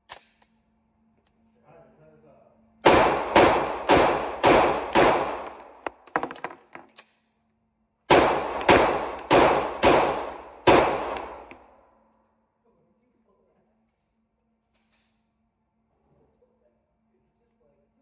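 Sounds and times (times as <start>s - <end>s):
pistol shots echoing: 2.8s - 5.9s, 8.1s - 11.8s.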